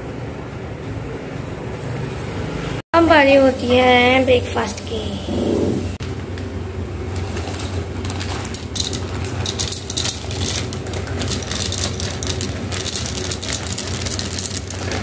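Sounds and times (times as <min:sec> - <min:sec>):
cereal rattling into bowl: 0:07.1 - 0:15.0.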